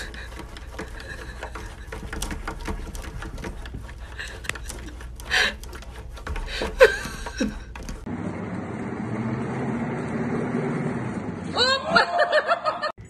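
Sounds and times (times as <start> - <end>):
cat paws tapping on glass: 0.0 - 8.1.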